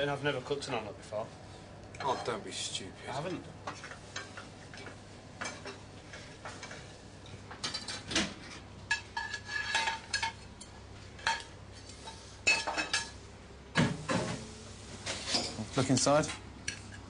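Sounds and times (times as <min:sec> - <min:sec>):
clattering pans plates and cutlery: 0:07.6 - 0:10.4, 0:11.2 - 0:13.2, 0:13.8 - 0:16.0.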